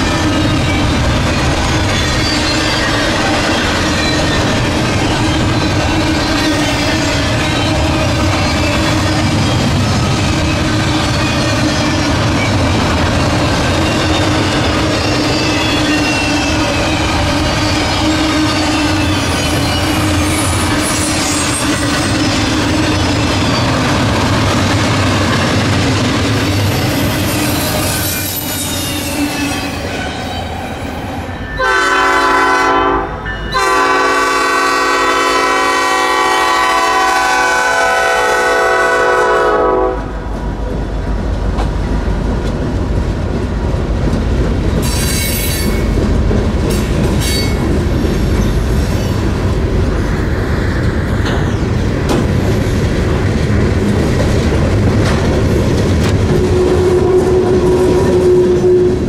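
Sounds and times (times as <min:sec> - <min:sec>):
wheel squeal: 0:00.0 - 0:24.0, 0:26.4 - 0:31.1, 0:44.8 - 0:46.0, 0:46.7 - 0:49.2
train wheels clickety-clack: 0:00.0 - 0:30.6, 0:33.5 - 0:59.0
locomotive air horn blasts: 0:31.6 - 0:40.1, 0:56.4 - 0:59.0.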